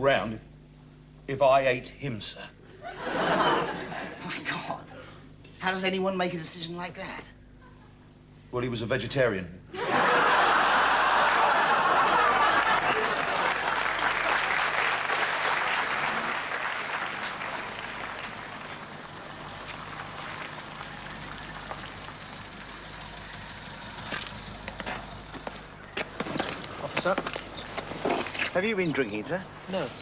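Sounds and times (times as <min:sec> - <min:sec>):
audience applauding and laughing: 0:02.8 - 0:04.2, 0:09.8 - 0:21.8.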